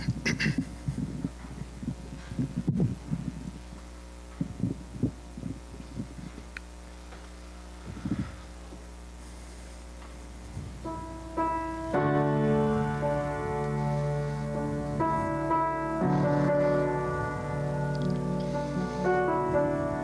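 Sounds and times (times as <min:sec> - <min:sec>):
grand piano chords: 0:10.0 - 0:20.0.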